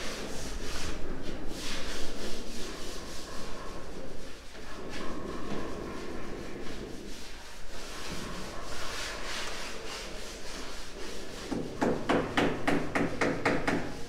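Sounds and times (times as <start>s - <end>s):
rag rubbing on ceramic tile: 0.0s - 14.0s
rubber mallet knocking on tile: 11.5s - 14.0s.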